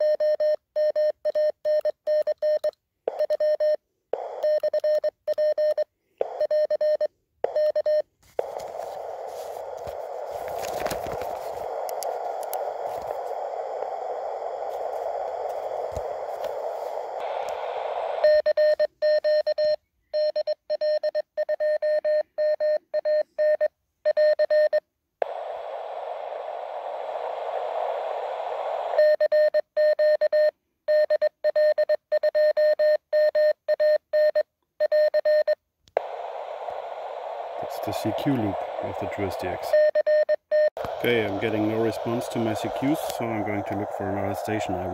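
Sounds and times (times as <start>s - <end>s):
receiver hiss: 4.2s - 19.4s, 25.2s - 29.2s, 35.9s - 40.1s, 40.7s - 44.9s.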